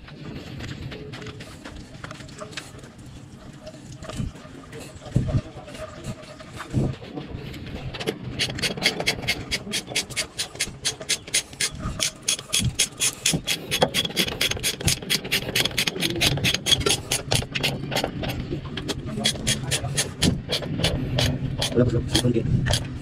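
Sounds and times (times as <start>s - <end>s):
hand tool rasping: 8.4s - 23.0s.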